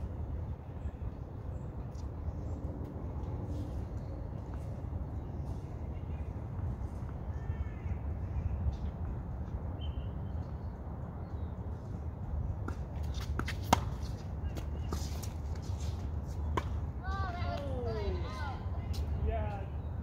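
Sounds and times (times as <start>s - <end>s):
bird chirping: 9.8s - 11.6s
tennis ball hits and bounces: 12.6s - 16.9s.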